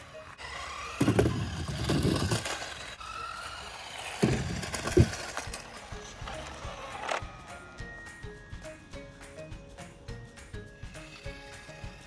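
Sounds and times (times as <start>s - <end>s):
rc car rumbling and clattering: 0.0s - 8.7s, 9.6s - 12.0s
small electric motor whine: 0.0s - 12.0s.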